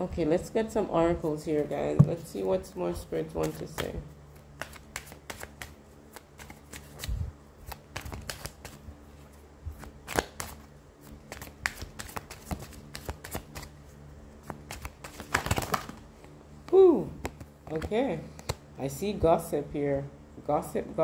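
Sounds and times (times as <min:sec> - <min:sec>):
cards being shuffled: 0:03.3 - 0:18.6.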